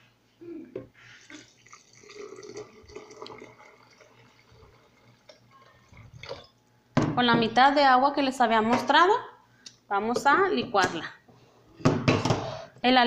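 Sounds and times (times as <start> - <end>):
water pouring into blender jar: 1.3 - 6.5.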